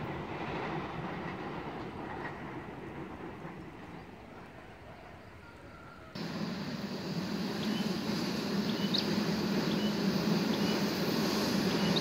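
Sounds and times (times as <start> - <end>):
train locomotive hum: 0.0 - 12.0.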